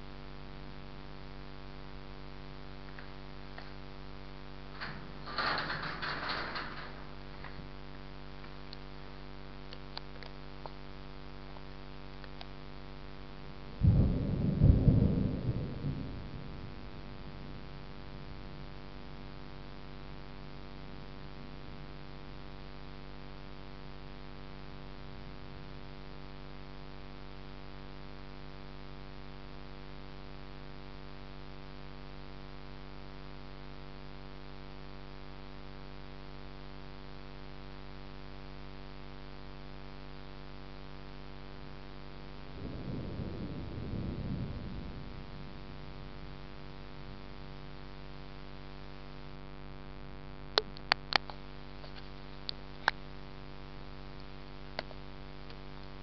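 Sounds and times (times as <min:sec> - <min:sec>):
steady low hum: 0:00.0 - 0:56.0
thunderclap rumbling: 0:04.7 - 0:07.8, 0:13.8 - 0:19.3, 0:42.5 - 0:47.7.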